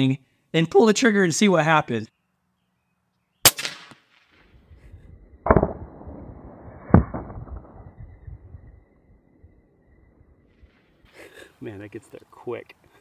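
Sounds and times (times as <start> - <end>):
air rifle shot: 3.4 - 8.6.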